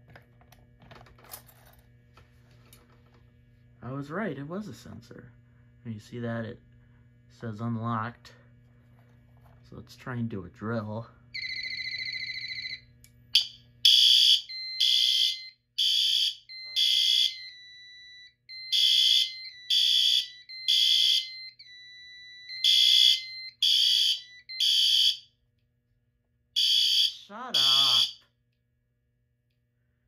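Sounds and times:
fire alarm horn blasts: 0:11.4 - 0:25.3, 0:26.6 - 0:28.3.

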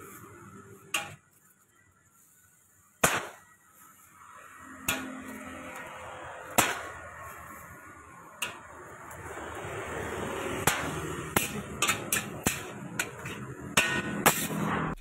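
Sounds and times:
eggs cracking on steel wok: 0:10.5 - 0:15.0.

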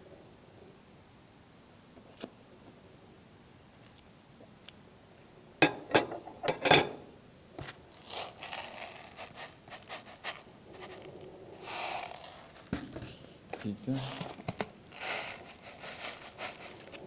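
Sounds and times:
knocks and scrapes: 0:07.6 - 0:17.0
plastic packaging rustling: 0:07.6 - 0:17.0.

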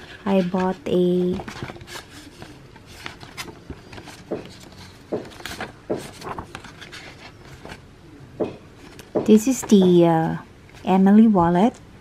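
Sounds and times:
paper rustling and crinkling: 0:00.0 - 0:07.8.

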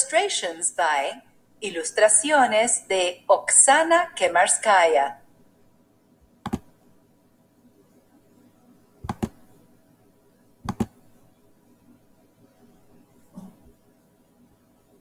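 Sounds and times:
faint steady hum: 0:00.0 - 0:15.0
computer mouse double clicks: 0:06.5 - 0:06.7, 0:09.0 - 0:09.4, 0:10.7 - 0:11.0.

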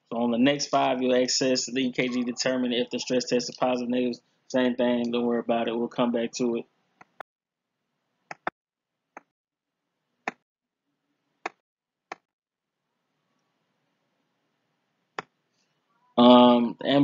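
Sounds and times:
computer mouse clicks: 0:08.3 - 0:08.5.

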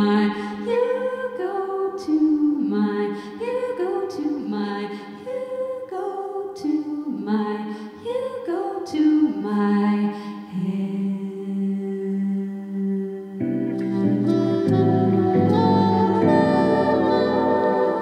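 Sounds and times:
woman singing jazz ballad: 0:00.0 - 0:18.0
jazz guitar: 0:13.4 - 0:18.0.

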